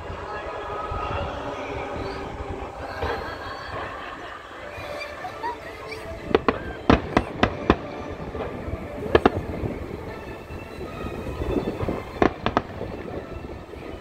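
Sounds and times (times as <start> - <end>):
firework shells bursting: 5.9 - 13.5.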